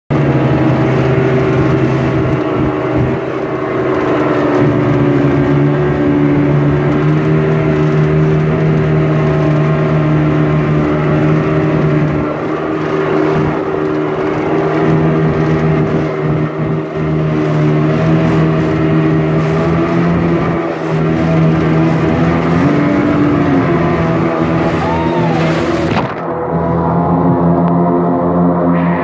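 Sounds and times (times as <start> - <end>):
boat engine droning: 0.1 - 29.0
whitewater rushing: 0.2 - 27.1.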